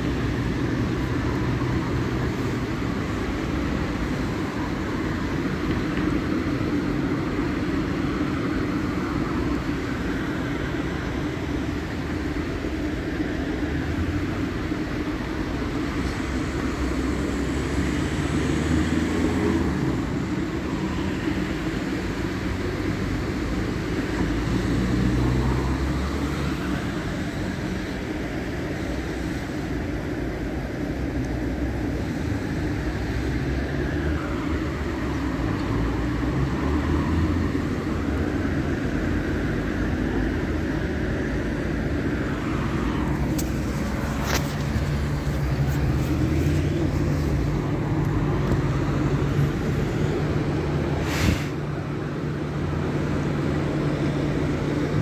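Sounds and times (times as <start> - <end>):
water spray: 51.0 - 51.6.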